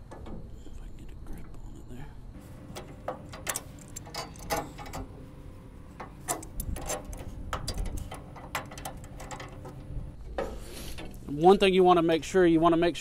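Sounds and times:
wrench metallic clicks and clanks: 2.6s - 5.3s, 5.9s - 11.3s.

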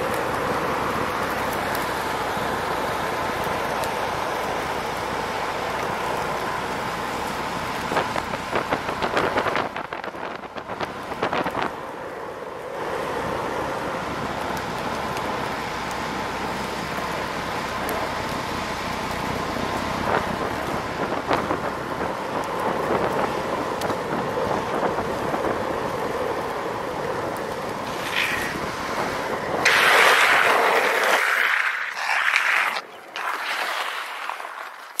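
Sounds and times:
skateboard wheels rolling on asphalt: 0.0s - 35.0s
wind buffeting microphone: 7.7s - 11.9s, 19.9s - 30.8s.

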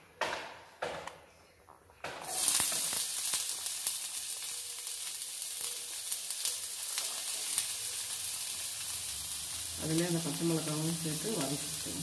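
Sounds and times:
onions sizzling in hot oil: 2.2s - 12.0s.

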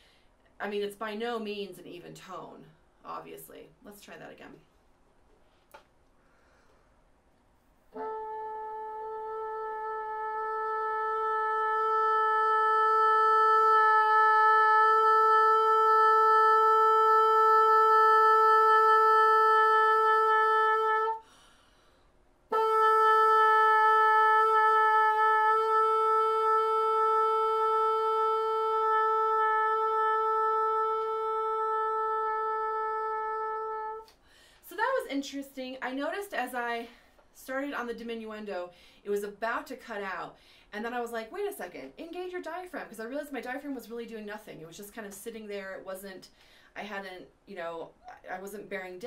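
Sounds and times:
player taking a breath: 0.0s - 0.4s, 6.2s - 7.0s, 21.2s - 22.2s, 34.2s - 34.6s, 38.7s - 39.0s, 40.4s - 40.7s, 46.4s - 46.8s
bassoon holding long notes: 7.9s - 21.2s, 22.5s - 34.0s.

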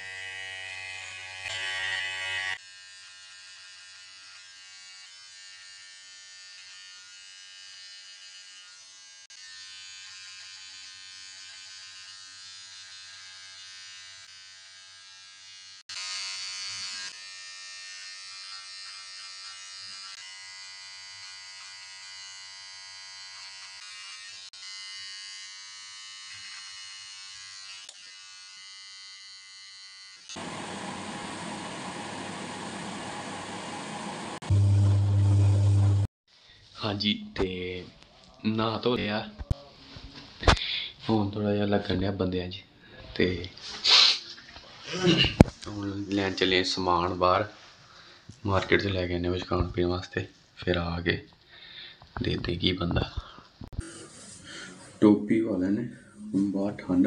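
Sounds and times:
electric hair trimmer buzzing: 0.0s - 36.1s.

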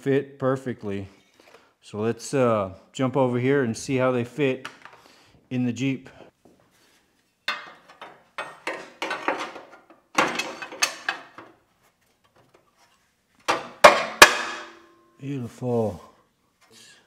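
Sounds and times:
steel plates clanking and scraping: 7.5s - 11.4s.

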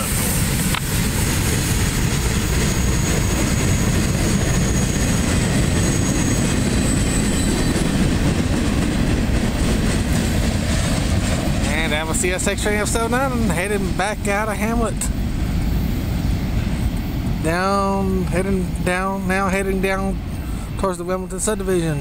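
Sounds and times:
freight cars rumbling on rails: 0.0s - 22.0s
high wheel squeal: 2.6s - 8.5s.

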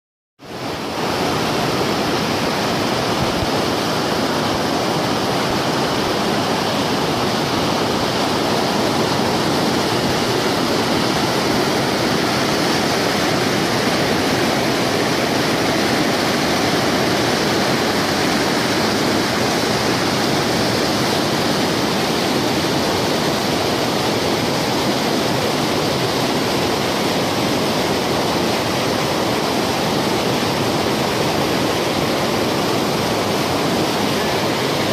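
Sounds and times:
river water rushing over boulders: 0.4s - 34.9s.

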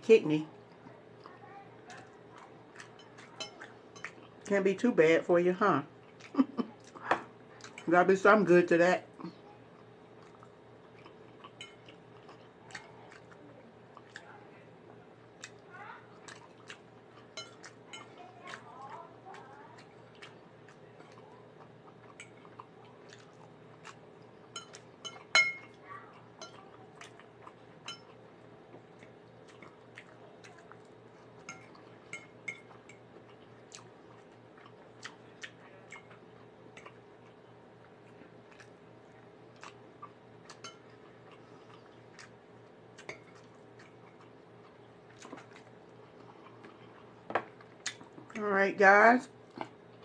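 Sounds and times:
faint steady hum: 0.0s - 50.0s
person chewing food: 0.6s - 4.5s, 6.0s - 7.9s, 9.2s - 48.4s, 49.4s - 50.0s
fork clinking on a plate: 11.6s - 11.9s, 17.3s - 18.1s, 24.6s - 25.7s, 26.4s - 26.6s, 27.9s - 28.2s, 31.4s - 32.7s, 40.6s - 40.9s.

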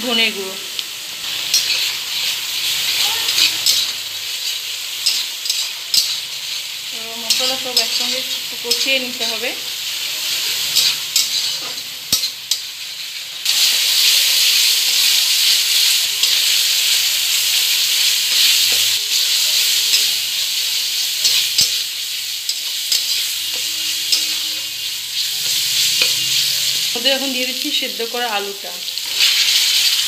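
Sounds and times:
paste sizzling in hot oil: 0.0s - 30.0s
metal spatula scraping pan: 1.3s - 9.4s, 10.5s - 13.2s, 22.5s - 26.7s.

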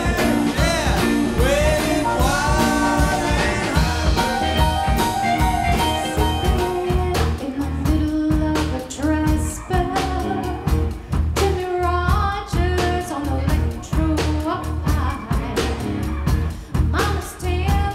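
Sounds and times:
person singing: 0.0s - 5.2s
drum kit beat: 0.0s - 17.9s
live rock band playing: 0.0s - 17.9s.

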